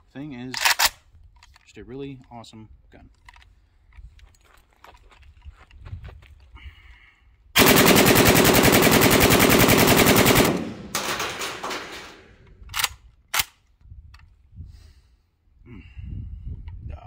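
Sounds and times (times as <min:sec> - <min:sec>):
gunfire echo: 0:07.6 - 0:12.4
automatic rifle burst: 0:07.6 - 0:13.5.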